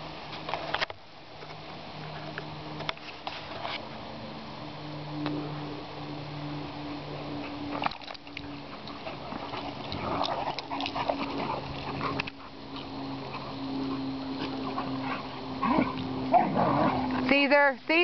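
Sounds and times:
steady low hum: 0.0 - 18.0
dogs vocalising while playing: 7.3 - 17.3.

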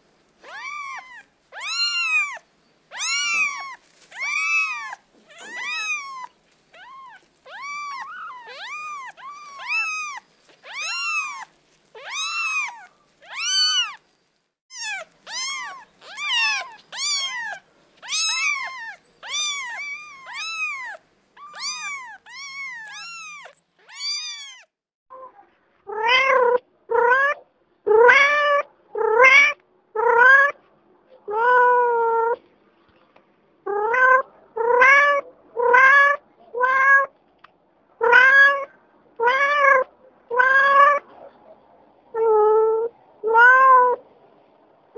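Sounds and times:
adult cat meowing: 0.4 - 14.0, 14.7 - 24.7, 25.9 - 30.6, 33.7 - 37.1, 38.0 - 41.0, 42.2 - 44.0
kitten mewing: 0.4 - 14.0, 14.7 - 24.7, 33.7 - 37.1, 38.0 - 41.1.

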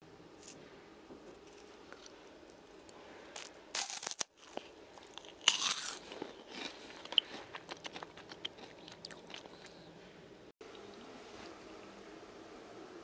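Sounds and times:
crunching bites into fried pork: 3.4 - 9.5
chewing with small crackles: 4.4 - 9.9.

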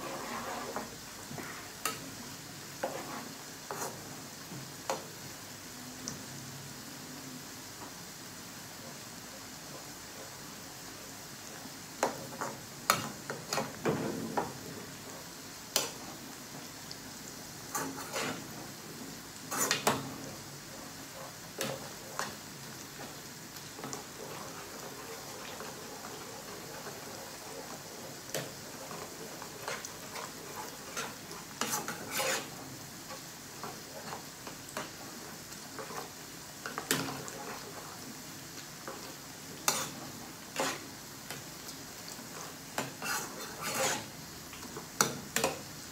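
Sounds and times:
metal spoon scraping a pan: 0.0 - 2.0, 2.8 - 4.0, 17.7 - 18.5, 19.5 - 20.0, 23.8 - 35.0, 35.8 - 37.8, 38.9 - 40.9, 42.3 - 44.1
oil sizzling: 0.0 - 45.9.

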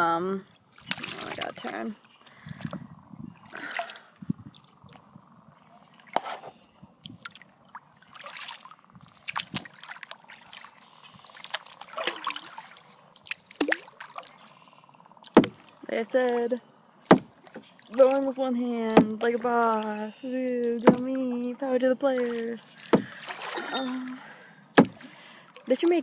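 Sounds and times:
paddle splashing in water: 0.7 - 5.1, 6.0 - 15.9, 17.0 - 19.9, 20.6 - 21.2, 22.1 - 25.8
water dripping off paddle: 7.0 - 14.6, 17.0 - 21.2.

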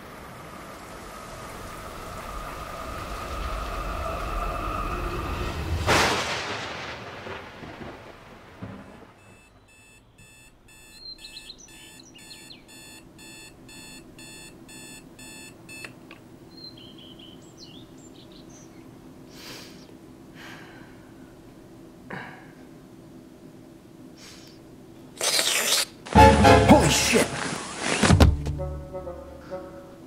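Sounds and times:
rumble: 0.0 - 9.7
electronic alarm clock beeping: 9.2 - 15.9
bedding rustling: 26.8 - 28.6.

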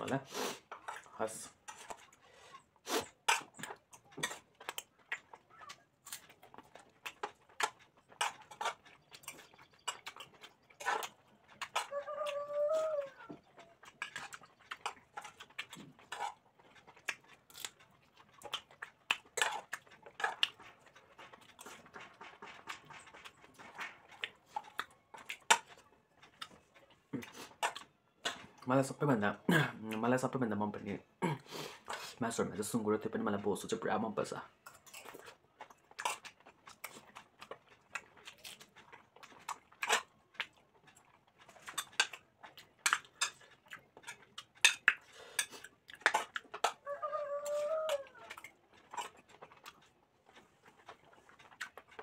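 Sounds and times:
chewing and lip smacks: 0.2 - 31.0, 31.6 - 52.0
wavering animal call: 11.8 - 13.4, 46.8 - 48.3.

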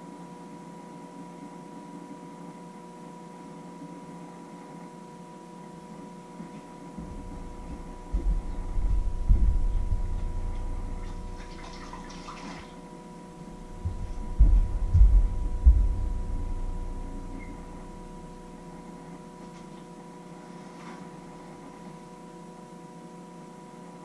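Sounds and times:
faint electrical hum: 0.0 - 24.0
barefoot footsteps on tiled floor: 7.0 - 10.8, 13.4 - 16.4.

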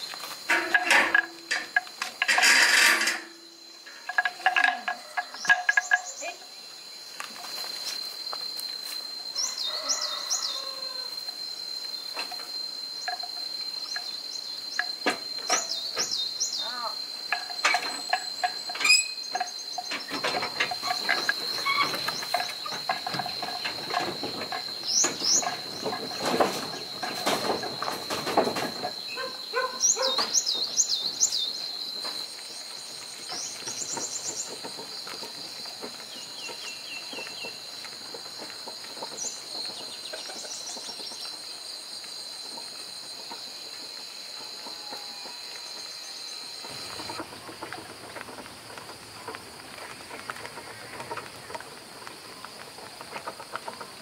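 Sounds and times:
insect trilling: 0.0 - 51.6
knocks and rattles: 0.3 - 6.3, 17.3 - 29.2.

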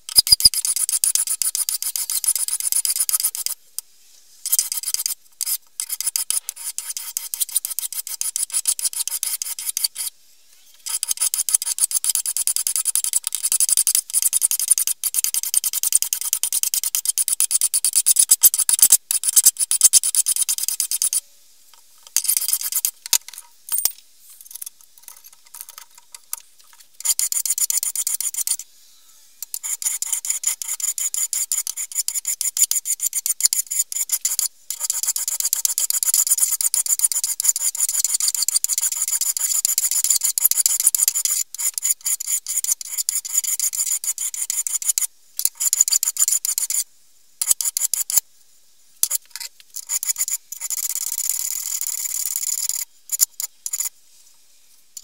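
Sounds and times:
hand file rasping on steel: 0.1 - 3.6, 4.4 - 10.1, 10.8 - 21.2, 27.0 - 28.6, 29.5 - 45.0.

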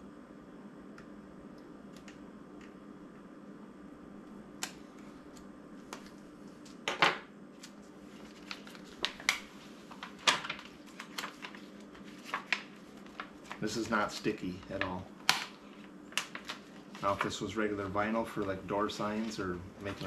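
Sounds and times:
steady low hum: 0.0 - 20.0
vinyl sheet peeling: 7.5 - 20.0
vinyl sheet clicks and rustles: 7.6 - 17.5.

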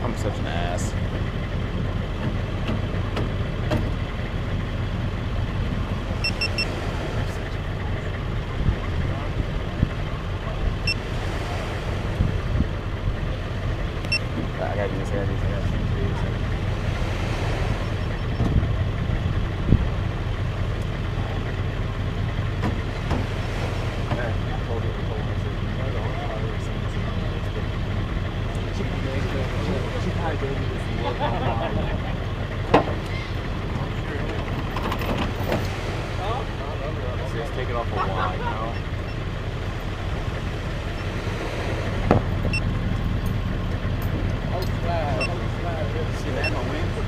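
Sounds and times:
vehicle engine idling: 0.0 - 47.0
high electronic beeps: 6.2 - 6.7, 46.4 - 46.6.

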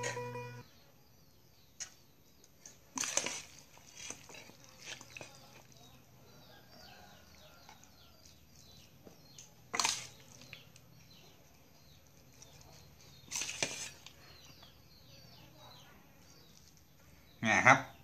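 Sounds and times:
spoon scraping steel bowl: 0.0 - 0.6, 13.1 - 14.1
birds chirping: 0.0 - 2.6.

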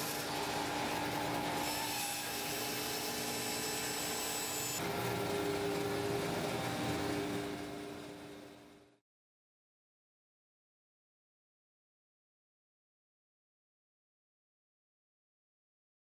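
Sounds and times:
bandsaw humming: 0.0 - 8.3.

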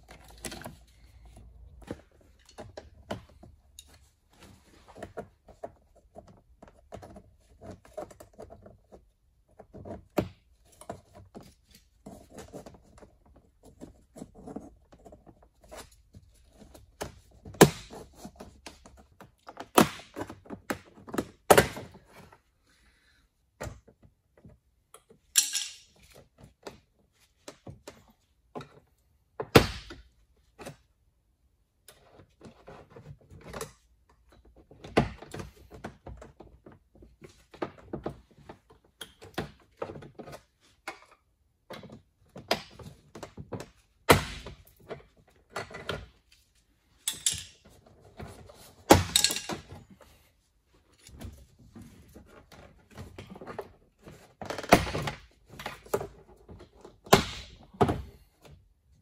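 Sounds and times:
loud sharp plastic cracks: 57.1 - 57.6.

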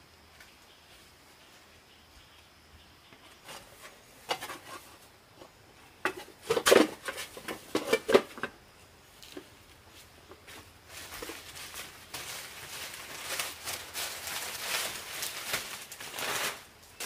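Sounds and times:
objects knocking and rubbing: 3.3 - 8.6.

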